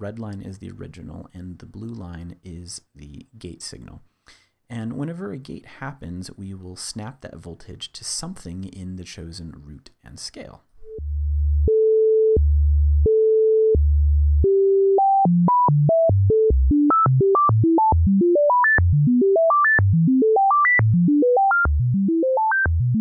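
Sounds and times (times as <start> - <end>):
synthesizer stepped notes: 10.8 - 23.0.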